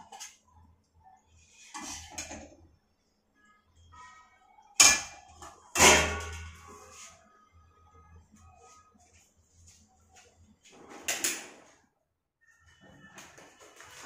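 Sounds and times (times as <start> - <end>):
metallic clanks of kitchenware: 4.8 - 6.6.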